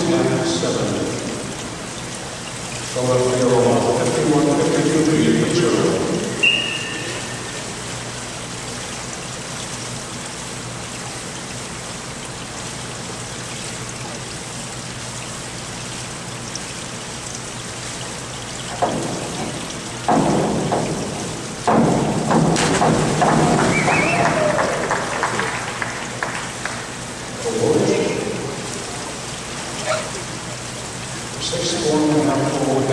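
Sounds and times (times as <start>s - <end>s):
hiss of pool water: 5.9s - 21.6s
diver entry splash: 20.2s - 26.0s
people clapping: 23.4s - 26.9s.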